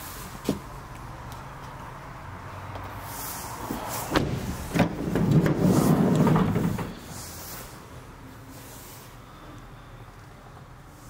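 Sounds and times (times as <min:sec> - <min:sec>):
sliding door rolling rumble: 0:03.8 - 0:07.4.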